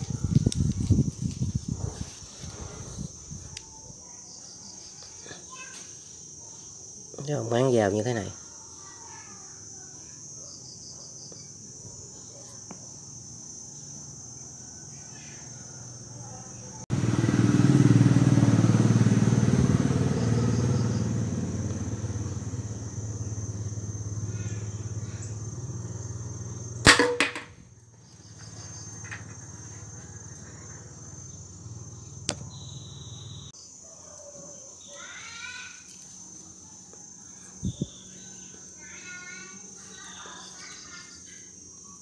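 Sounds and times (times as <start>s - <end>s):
motorcycle engine running: 16.9s - 33.5s
pellet striking cardboard can: 26.9s - 27.6s.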